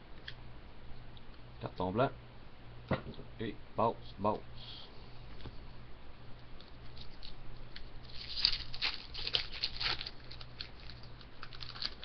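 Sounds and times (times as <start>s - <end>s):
foil wrapper crinkling: 6.8s - 12.0s.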